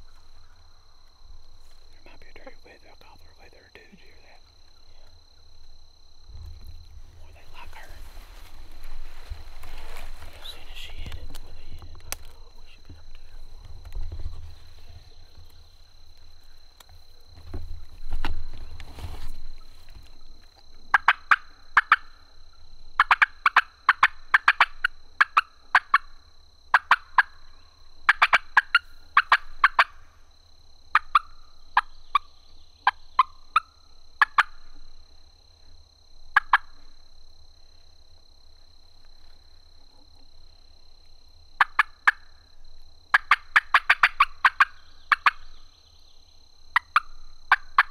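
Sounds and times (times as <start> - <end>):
turkeys gobbling: 20.9 - 22.1, 23.0 - 26.0, 28.1 - 30.0, 43.1 - 45.4.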